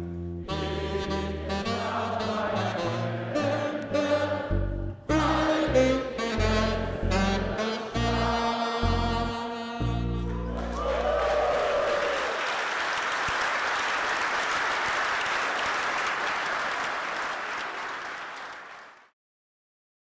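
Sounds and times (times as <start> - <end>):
audience applauding: 10.2 - 19.1
audience cheering: 10.3 - 19.0.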